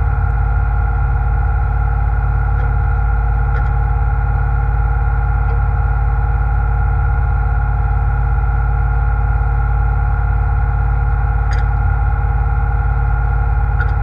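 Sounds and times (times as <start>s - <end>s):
boat engine droning: 0.0s - 14.0s
faint clicks: 11.5s - 11.7s.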